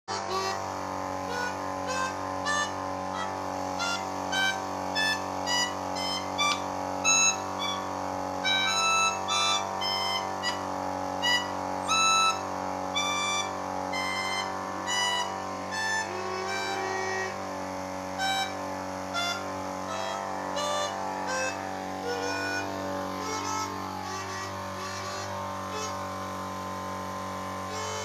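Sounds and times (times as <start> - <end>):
melodica notes: 0.1 - 28.0
low steady hum: 0.2 - 28.0.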